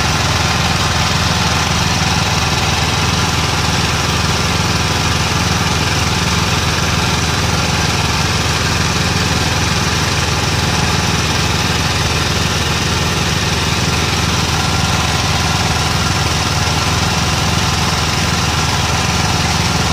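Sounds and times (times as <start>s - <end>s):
drilling rig engine running: 0.0s - 19.9s.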